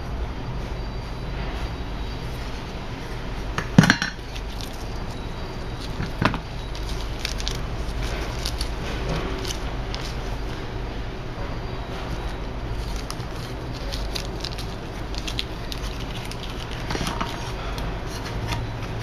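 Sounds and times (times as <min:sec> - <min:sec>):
steady low hum: 0:00.0 - 0:19.0
plastic bags rustling: 0:04.2 - 0:19.0.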